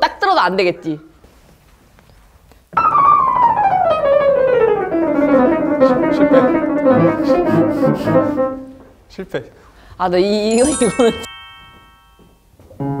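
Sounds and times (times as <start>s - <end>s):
fast piano playing: 2.8s - 8.8s, 10.5s - 12.2s.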